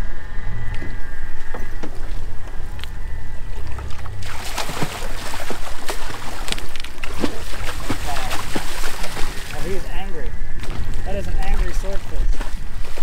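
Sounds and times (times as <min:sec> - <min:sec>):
faint high whine: 0:00.0 - 0:06.3
boat engine idling rumble: 0:00.0 - 0:07.0
fish splashing at surface: 0:03.9 - 0:09.6.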